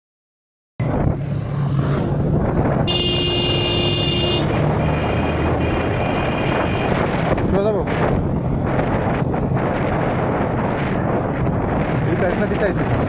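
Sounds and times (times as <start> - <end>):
vehicle engine hum: 0.8 - 13.0
wind and road noise: 0.8 - 13.0
high steady horn: 2.9 - 6.9.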